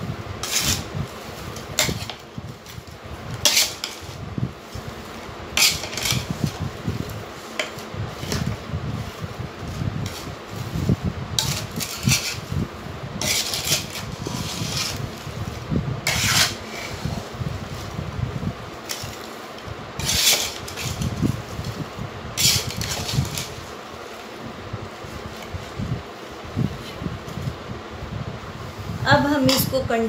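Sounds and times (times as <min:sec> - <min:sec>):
squelchy rustle of stirred food: 0:00.0 - 0:30.0
metal spoon scraping a pot: 0:00.4 - 0:00.9, 0:01.6 - 0:02.2, 0:03.4 - 0:04.2, 0:05.6 - 0:06.6, 0:11.4 - 0:12.5, 0:13.2 - 0:15.1, 0:16.0 - 0:17.3, 0:20.0 - 0:21.2, 0:22.4 - 0:23.7.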